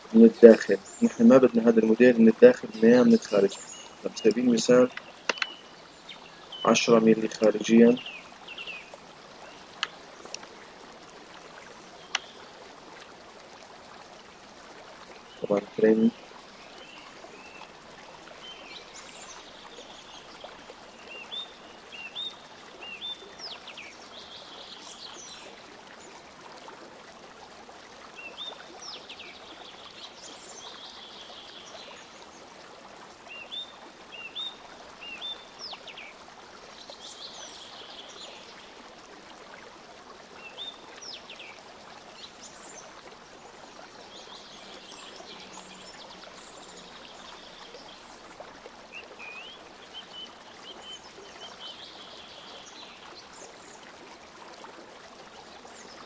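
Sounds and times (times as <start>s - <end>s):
birds chirping: 0.0s - 10.5s, 15.2s - 17.8s.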